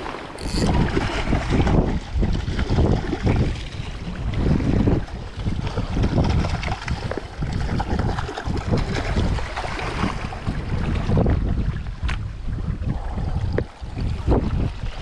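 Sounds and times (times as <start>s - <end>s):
waves washing against rocks: 0.0s - 11.9s
wind buffeting microphone: 0.0s - 15.0s.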